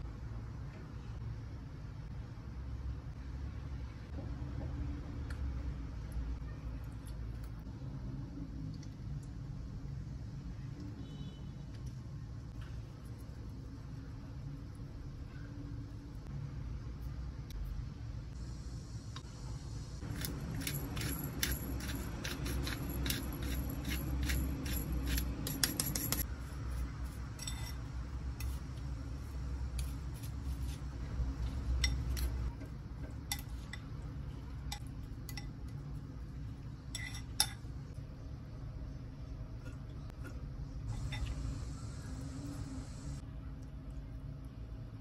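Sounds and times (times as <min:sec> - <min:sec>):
low steady hum: 0:00.0 - 0:45.0
utensils clicking against glass bowl: 0:20.1 - 0:26.3.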